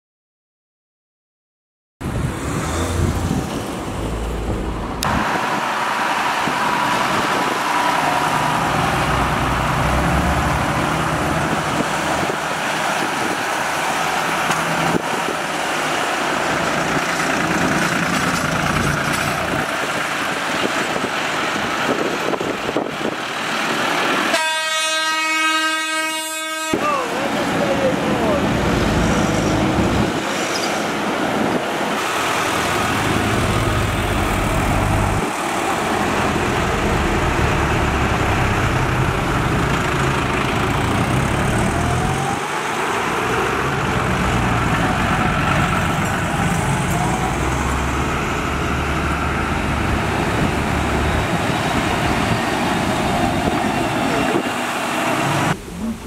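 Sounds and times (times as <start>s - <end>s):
tractor diesel engines running: 2.0s - 24.4s, 26.7s - 56.0s
horn blast: 24.3s - 27.1s.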